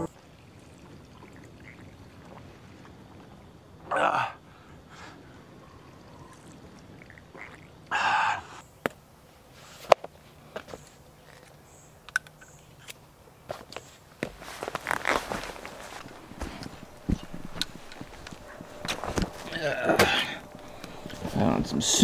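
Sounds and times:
man spitting out drink: 19.0s - 20.6s.

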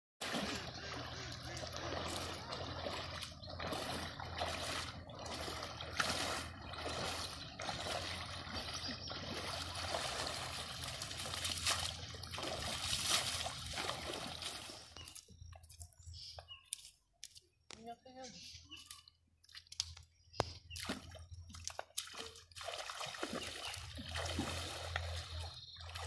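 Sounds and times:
person wading through splashing water: 0.2s - 15.8s, 18.8s - 26.0s.

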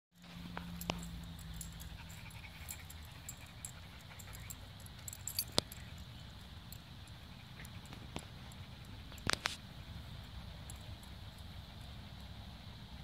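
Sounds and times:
dog collar jingling: 0.4s - 9.2s.

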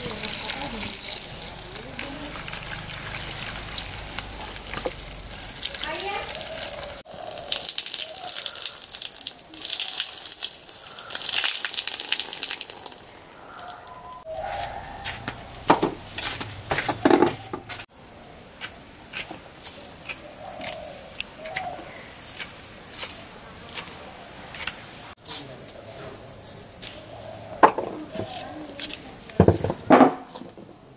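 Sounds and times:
high-pitched insect drone: 0.0s - 11.8s
water pouring into plastic bowl: 0.0s - 13.1s.

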